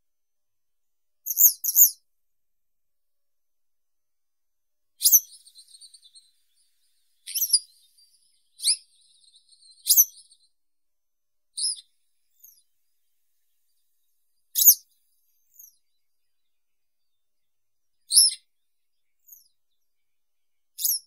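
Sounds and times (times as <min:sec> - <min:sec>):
bird calling high sharp notes: 0:07.2 - 0:10.4.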